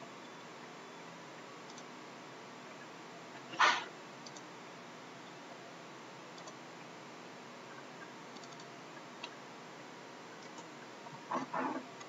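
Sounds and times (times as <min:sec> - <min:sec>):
faint computer mouse clicks: 0:01.7 - 0:01.9, 0:08.4 - 0:09.4.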